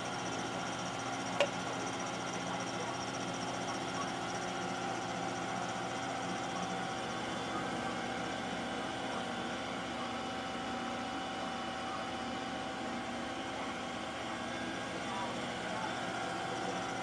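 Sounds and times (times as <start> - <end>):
milling machine humming: 0.0 - 17.0.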